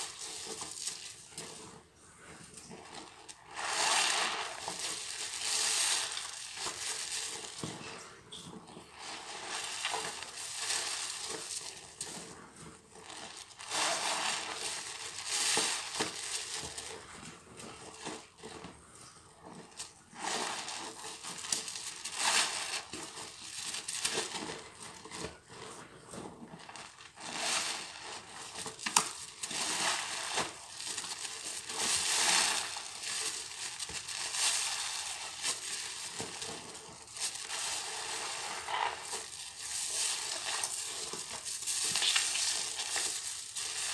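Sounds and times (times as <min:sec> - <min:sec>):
sponges squelching in suds: 0:02.4 - 0:08.0, 0:08.8 - 0:43.9.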